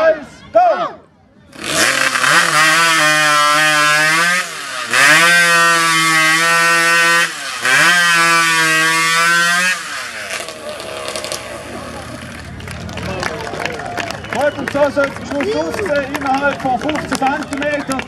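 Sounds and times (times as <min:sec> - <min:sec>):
chainsaw cutting through log: 0:01.5 - 0:12.4.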